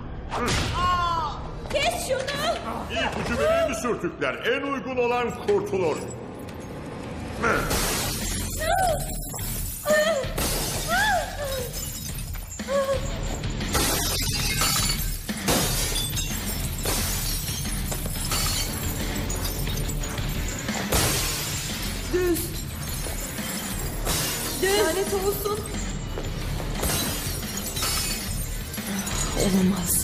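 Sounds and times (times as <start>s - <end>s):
tense film score: 0.0s - 14.6s, 15.3s - 30.0s
glass jars smashing: 7.7s - 30.0s.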